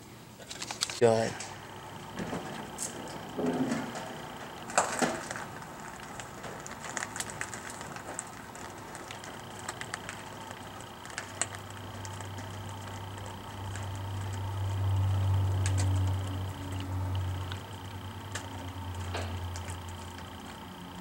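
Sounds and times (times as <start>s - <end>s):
hand tools clicking and knocking: 6.4s - 20.7s.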